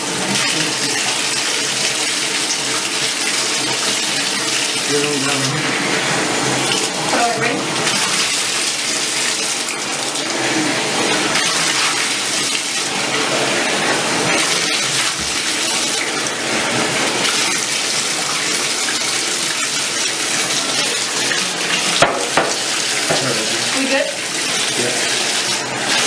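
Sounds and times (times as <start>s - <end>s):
water running into bathtub: 0.0s - 26.0s
sharp knocks: 22.0s - 23.2s.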